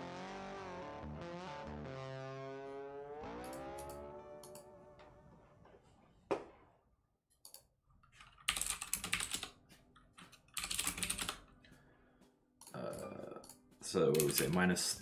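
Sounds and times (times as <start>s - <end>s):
typing on computer keyboard: 7.4s - 11.5s.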